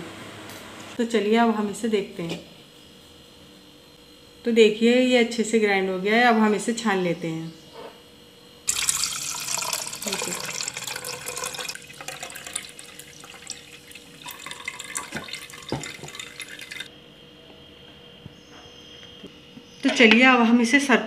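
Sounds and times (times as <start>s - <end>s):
juice pouring and splashing: 8.7s - 16.9s.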